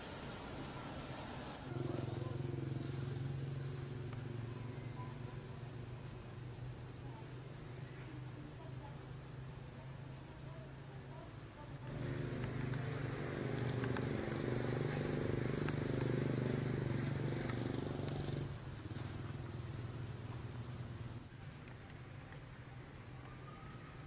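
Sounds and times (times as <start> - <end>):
motor engine droning: 11.9 - 21.2.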